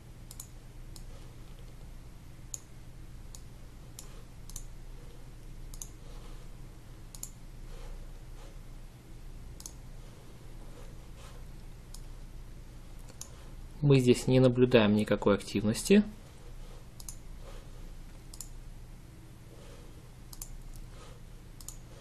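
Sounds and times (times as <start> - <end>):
faint electrical hum: 0.0 - 22.0
mouse buttons clicking: 5.7 - 6.0, 7.1 - 7.4, 17.0 - 17.2, 20.3 - 20.8, 21.6 - 21.8.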